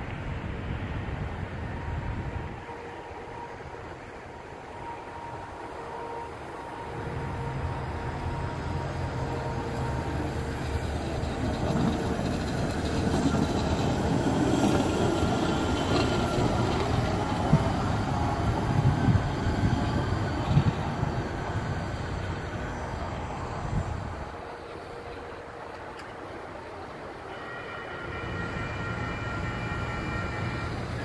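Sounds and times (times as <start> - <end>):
truck rumbling on rails: 6.7 - 27.2.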